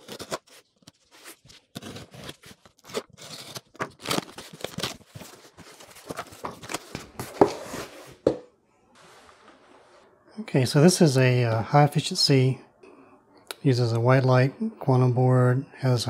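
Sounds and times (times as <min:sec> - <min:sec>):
packing paper rustling: 0:00.0 - 0:07.9
cardboard scraping and ripping: 0:00.0 - 0:08.2.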